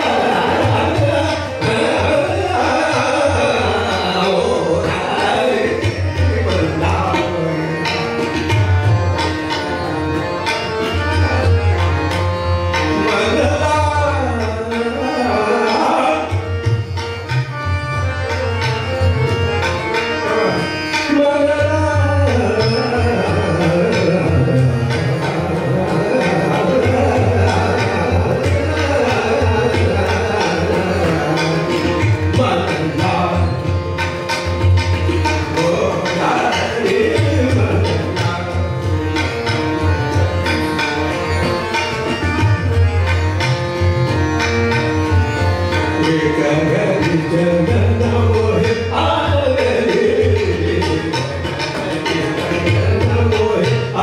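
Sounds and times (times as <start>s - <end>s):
man singing ornamented phrases: 0.0s - 7.8s, 46.0s - 51.6s
harmonium: 0.0s - 54.0s
tabla strokes: 0.0s - 54.0s.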